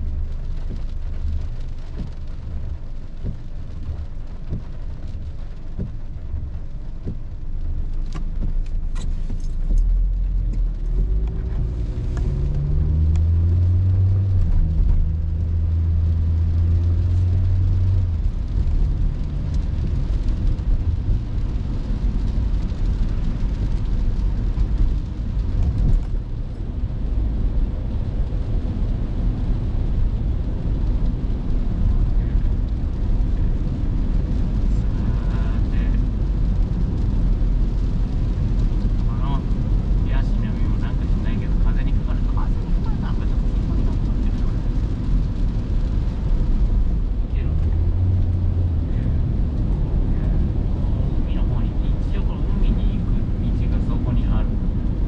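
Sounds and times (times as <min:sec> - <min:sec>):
car engine accelerating: 0:00.0 - 0:55.0
tyres hissing on wet road: 0:00.0 - 0:55.0.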